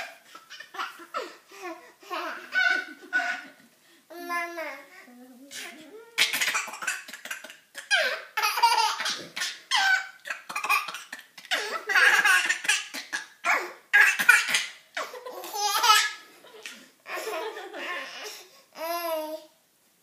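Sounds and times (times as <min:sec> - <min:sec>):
baby laughing hard: 0:00.0 - 0:03.6, 0:07.8 - 0:18.4.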